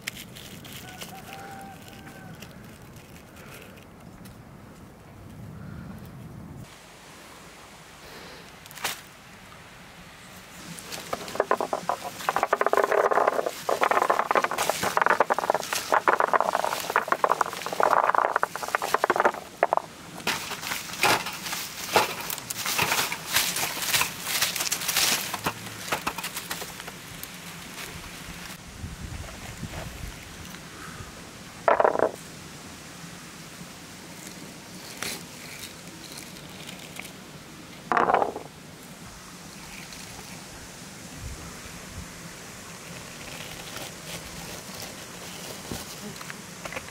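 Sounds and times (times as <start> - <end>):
chestnut burrs crackling: 0.0 - 4.2, 10.7 - 28.5, 31.7 - 32.2, 34.2 - 38.6
burrs knocking on tray: 11.0 - 22.2, 31.7 - 32.2, 37.9 - 38.5.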